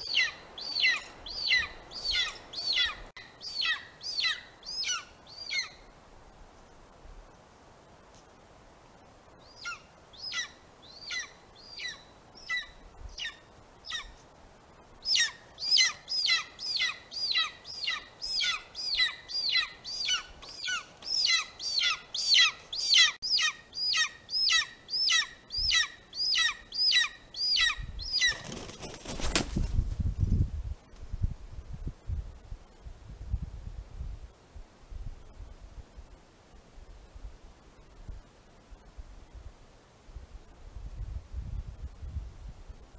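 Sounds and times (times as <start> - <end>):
eagle yelping: 15.1 - 28.3.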